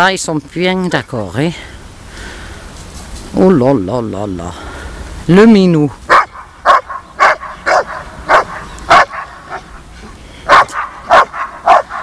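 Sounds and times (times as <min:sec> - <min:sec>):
dogs barking: 0:06.1 - 0:12.0.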